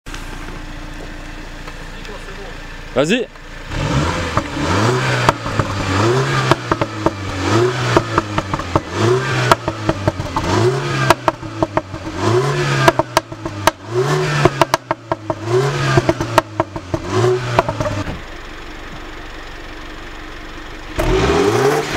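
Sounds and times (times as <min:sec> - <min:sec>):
car engine revving: 0:00.1 - 0:21.9
exhaust pops and cracks: 0:05.2 - 0:12.2, 0:12.8 - 0:18.3.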